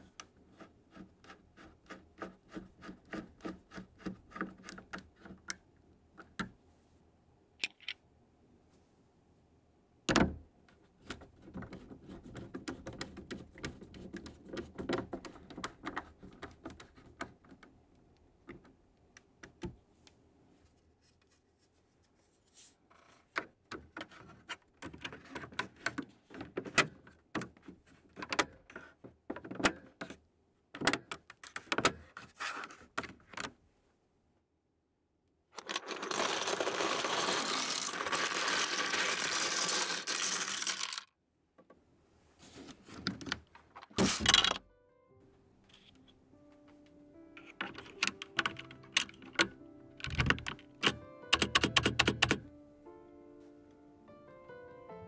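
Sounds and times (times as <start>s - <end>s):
plastic keycaps clattering: 35.6s - 41.1s, 47.6s - 50.8s.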